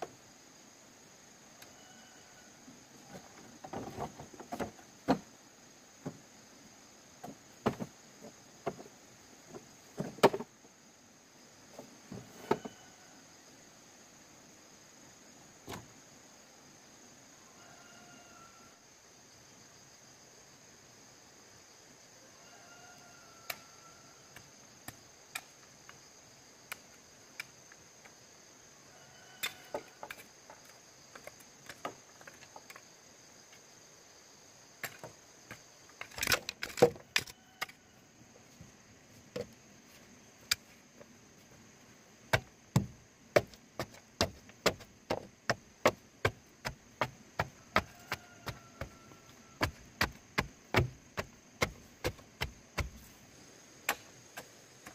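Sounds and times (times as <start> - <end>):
crickets droning: 0.0 - 54.9
chopping bamboo: 42.3 - 49.0, 49.6 - 53.1.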